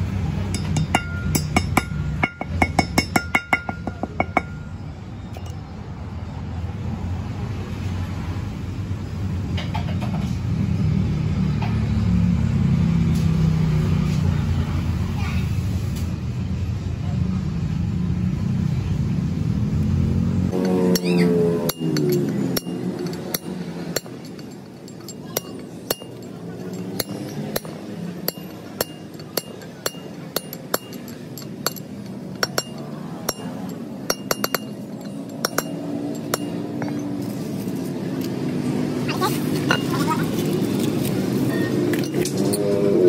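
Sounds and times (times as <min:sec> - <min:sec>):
vehicle engine rumble: 0:00.0 - 0:43.0
hammer striking metal: 0:00.4 - 0:04.8, 0:20.5 - 0:37.2.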